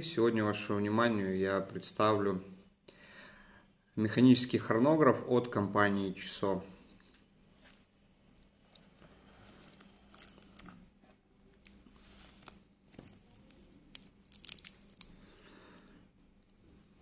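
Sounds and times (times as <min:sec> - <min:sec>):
fabric rustling: 0:07.5 - 0:14.4
watch bracelet links clicking: 0:13.4 - 0:15.1.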